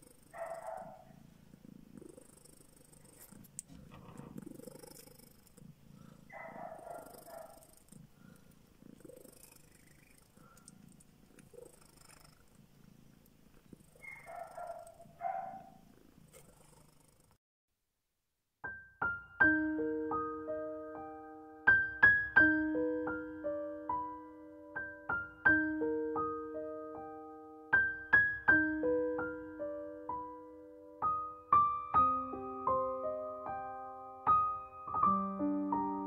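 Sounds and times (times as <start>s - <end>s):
cat purring: 0.0s - 17.4s
gentle piano music: 18.6s - 36.0s.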